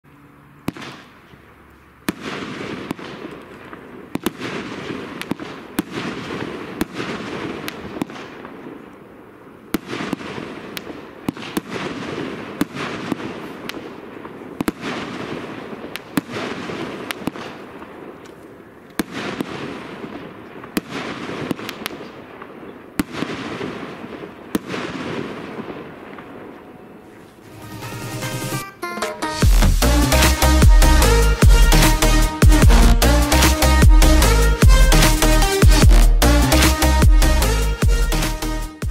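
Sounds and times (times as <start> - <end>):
fireworks reports: 9.7 - 38.9
fireworks hissing: 27.5 - 38.9.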